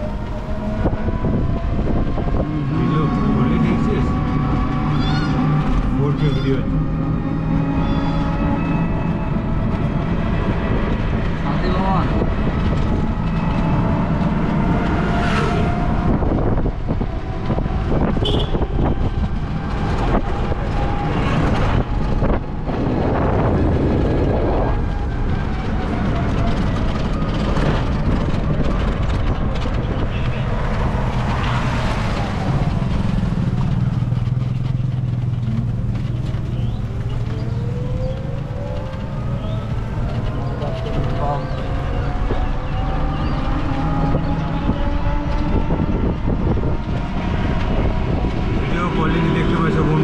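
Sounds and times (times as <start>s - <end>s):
road rumble and hiss: 27.5s - 42.6s.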